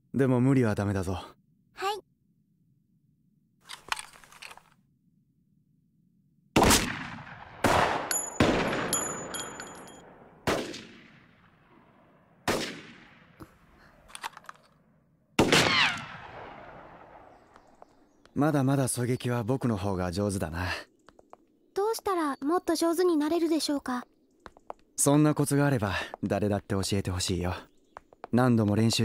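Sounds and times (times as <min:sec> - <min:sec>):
rifle shots with echo: 0:06.6 - 0:13.4, 0:15.4 - 0:17.5
high metallic ringing: 0:08.1 - 0:10.0.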